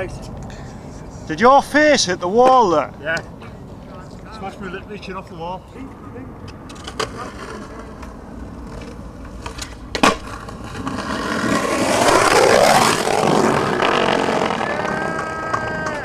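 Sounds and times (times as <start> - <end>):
skateboard wheels rolling: 6.6 - 16.0
skateboard clack: 6.7 - 16.0.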